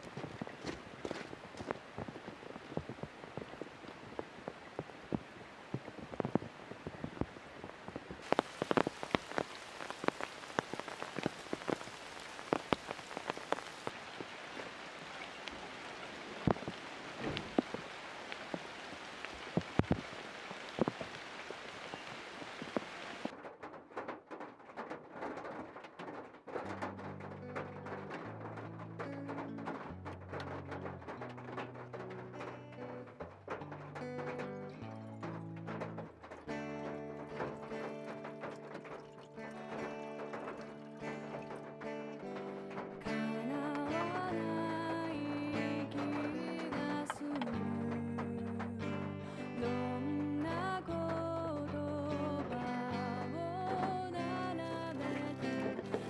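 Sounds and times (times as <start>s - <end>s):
heavy raindrops tapping: 0.0s - 56.0s
rain on a vehicle roof: 0.0s - 56.0s
steady rain: 0.0s - 56.0s.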